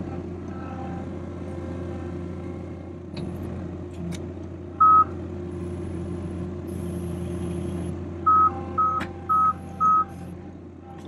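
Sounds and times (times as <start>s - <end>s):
loader engine running: 0.0s - 11.0s
electronic warning beeps: 4.8s - 5.1s, 6.7s - 10.3s.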